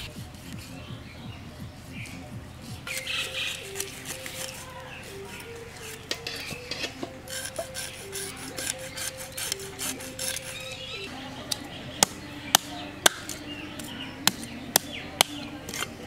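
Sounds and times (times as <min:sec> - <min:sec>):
knife scraping fish scales: 0:02.9 - 0:04.7, 0:05.8 - 0:10.9, 0:15.7 - 0:16.0.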